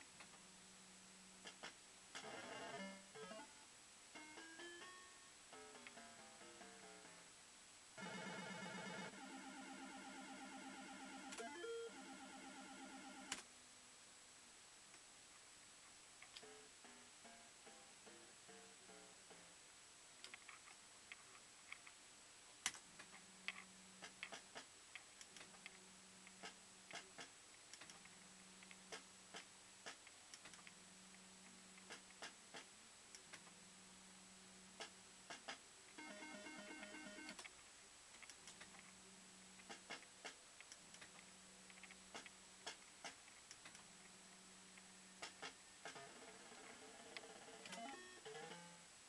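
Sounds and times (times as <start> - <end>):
electronic beeps: 36.0 - 37.4.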